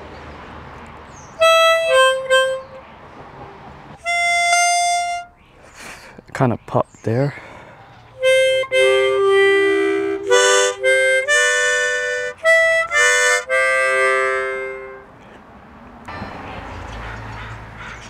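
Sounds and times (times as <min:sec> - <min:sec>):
harmonica playing a tune: 0:01.4 - 0:02.8, 0:04.0 - 0:05.3, 0:08.2 - 0:15.1.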